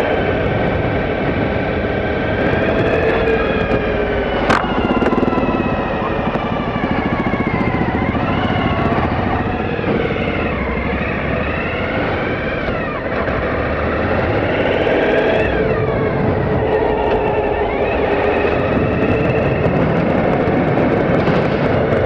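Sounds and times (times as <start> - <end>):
motorcycle engine revving: 0.0 - 22.0
steady rush of noise: 0.0 - 22.0.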